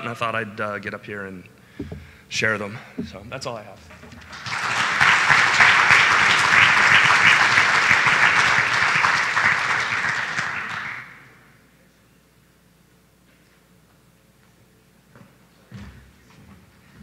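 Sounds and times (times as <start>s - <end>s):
audience applauding: 4.0s - 11.3s.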